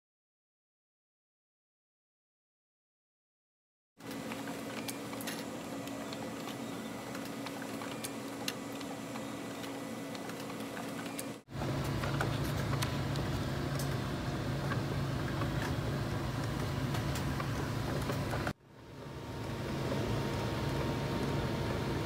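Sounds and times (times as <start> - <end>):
small printer clicks: 4.0 - 13.9
printer running: 4.0 - 22.0
low hum: 4.2 - 22.0.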